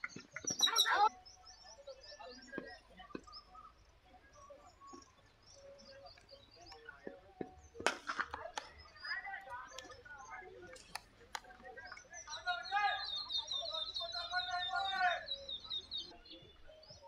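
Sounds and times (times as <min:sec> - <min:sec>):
small birds chirping: 0:00.0 - 0:17.0
cricket bat striking ball: 0:07.4 - 0:08.8.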